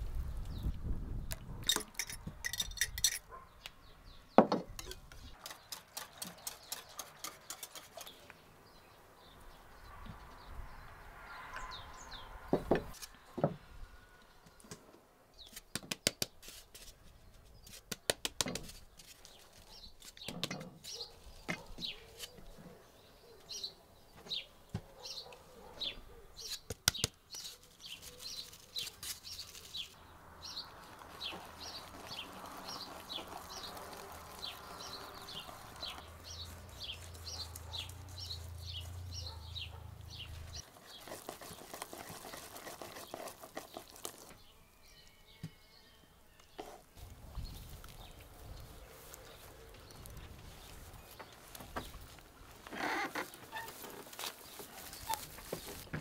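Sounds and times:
small birds chirping: 0.2s - 13.4s, 17.0s - 56.0s
flour sifting hiss: 30.6s - 39.1s.

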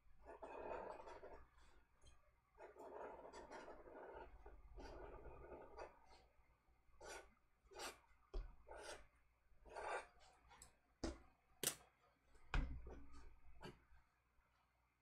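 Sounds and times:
marker scratching across paper: 0.2s - 1.7s, 2.6s - 6.3s, 7.0s - 8.0s, 8.7s - 9.1s, 9.7s - 10.4s.

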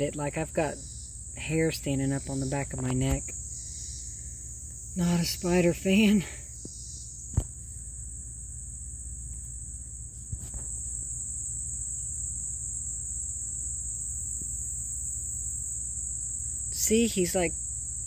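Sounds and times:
insects chirping: 0.0s - 18.0s.

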